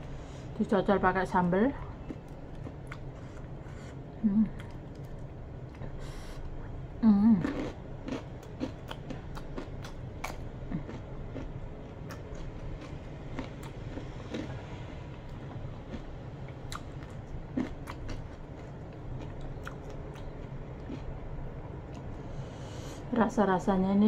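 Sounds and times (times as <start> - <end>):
chewing crispy chicken skin: 2.0 - 5.9, 7.4 - 21.2.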